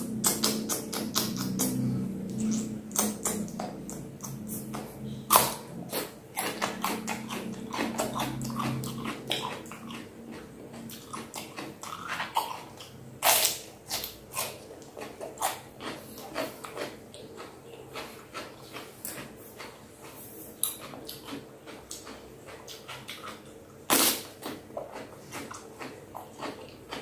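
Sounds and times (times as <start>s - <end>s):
cucumber crunching chewing: 0.0s - 27.0s.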